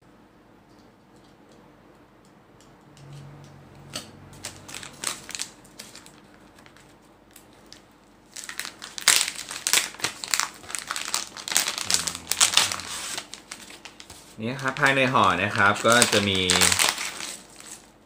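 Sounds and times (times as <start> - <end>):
plastic pouch crinkling: 4.4 - 18.0.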